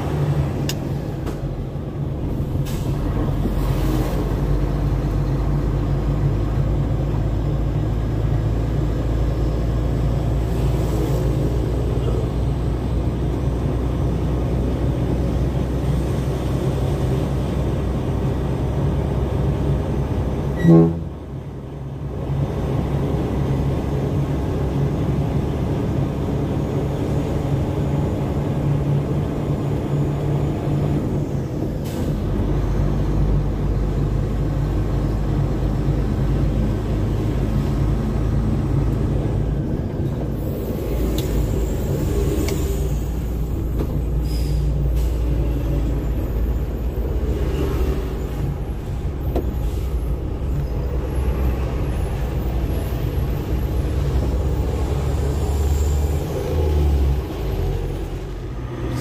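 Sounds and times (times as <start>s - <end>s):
diesel truck engine running: 0.0s - 59.0s
loud pitched horn blast: 20.6s - 21.3s.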